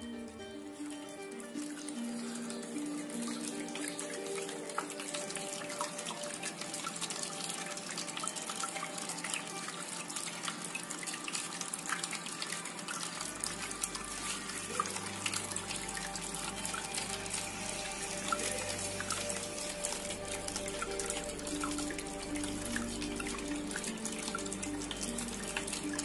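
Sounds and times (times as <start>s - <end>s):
fountain water trickling and splashing: 0.0s - 26.0s.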